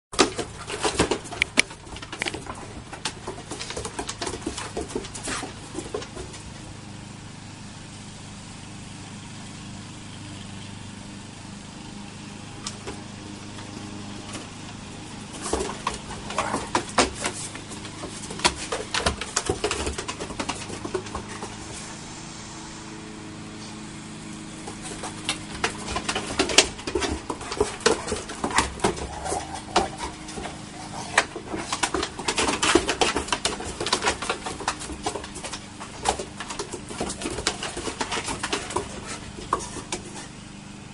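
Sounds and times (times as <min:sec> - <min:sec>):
dog claws clicking on wooden deck: 0:00.2 - 0:06.6, 0:12.6 - 0:21.8, 0:24.6 - 0:40.4
steady low hum: 0:10.2 - 0:40.9.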